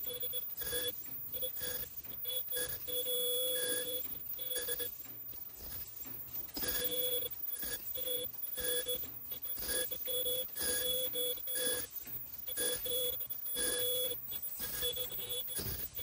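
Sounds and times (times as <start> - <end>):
machine clattering: 11.6 - 16.0.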